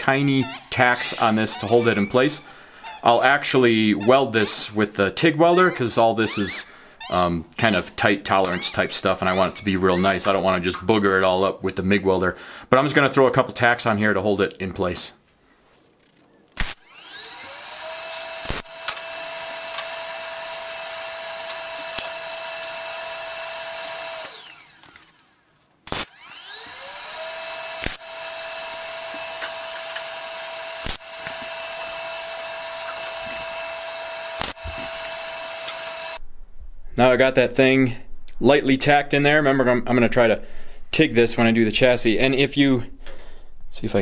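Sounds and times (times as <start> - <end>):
electric motor whining: 16.6 - 25.4, 26.0 - 36.2
sharp clicks: 30.8 - 31.4, 34.4 - 34.6.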